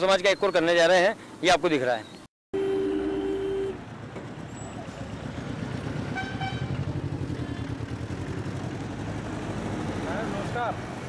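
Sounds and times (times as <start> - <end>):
engines rumbling: 0.0 - 11.0
higher-pitched horn toot: 2.6 - 3.8
vehicle horn: 2.6 - 3.8, 6.2 - 6.8.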